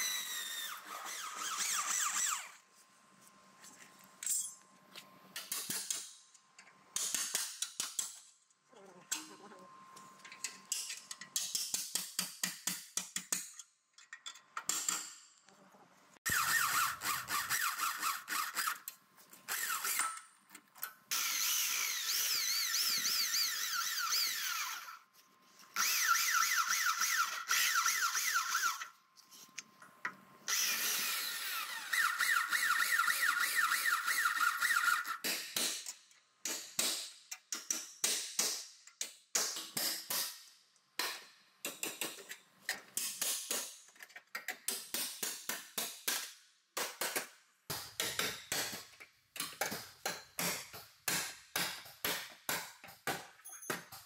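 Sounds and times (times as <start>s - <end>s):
power drill boring through metal: 0.0s - 2.6s, 16.3s - 18.9s, 19.5s - 20.2s, 21.1s - 25.0s, 25.8s - 29.0s, 30.5s - 35.2s
sharp metallic knocks and clicks: 10.4s - 15.3s, 35.2s - 40.4s, 41.0s - 54.0s.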